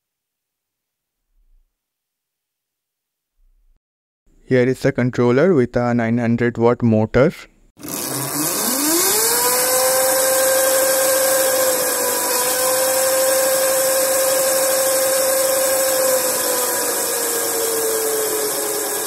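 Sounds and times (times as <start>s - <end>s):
electric motor whine: 7.8s - 19.0s
spinning drive chain: 7.8s - 19.0s.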